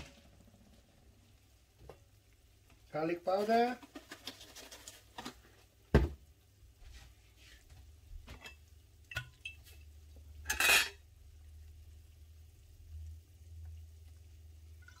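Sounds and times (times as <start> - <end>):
metal utensils clinking on pot: 10.4 - 11.0.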